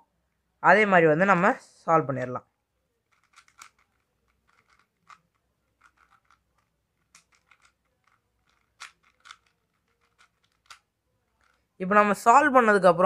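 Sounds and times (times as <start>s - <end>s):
puzzle cube clicking: 3.0s - 11.7s.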